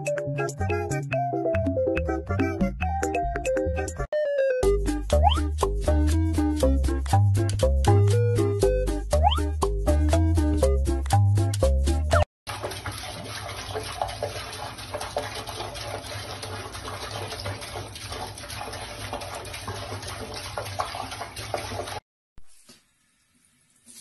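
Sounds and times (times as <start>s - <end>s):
water running from faucet into sink: 12.5s - 22.0s.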